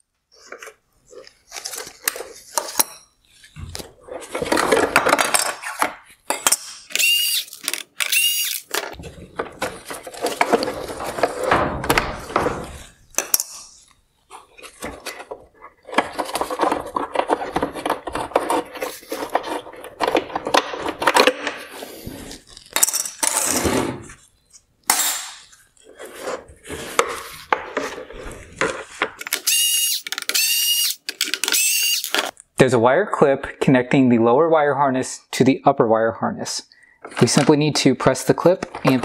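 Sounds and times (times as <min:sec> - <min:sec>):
plastic parts clicking and rattling: 0:03.7 - 0:21.6, 0:26.1 - 0:32.4.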